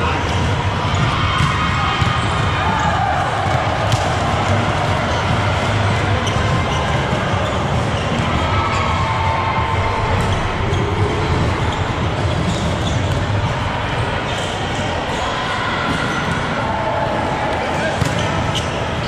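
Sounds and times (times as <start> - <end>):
volleyballs struck and bouncing: 0.0 - 8.4, 17.5 - 19.0
echoing indoor hall din: 0.0 - 19.0.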